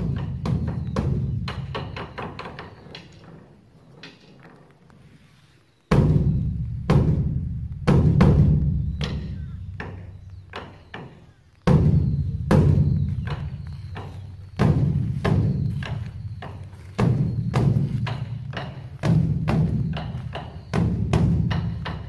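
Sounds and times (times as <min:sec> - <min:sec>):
large drum booming strikes: 0:05.9 - 0:10.0, 0:11.7 - 0:14.0, 0:14.6 - 0:22.0.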